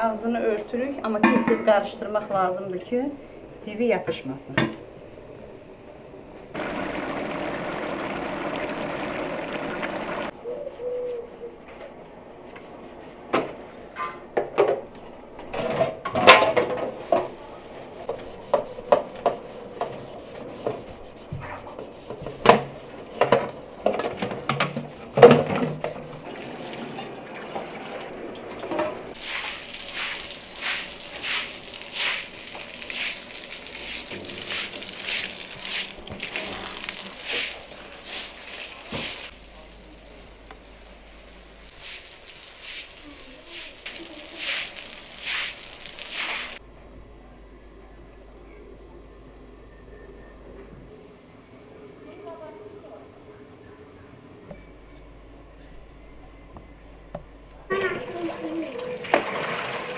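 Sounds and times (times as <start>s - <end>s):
sputtering splashy noise: 6.6s - 10.3s.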